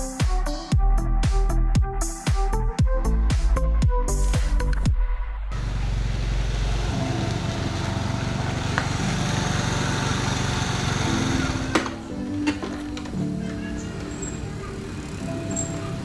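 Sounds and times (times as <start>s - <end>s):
motor scooter engine running: 5.6s - 16.0s.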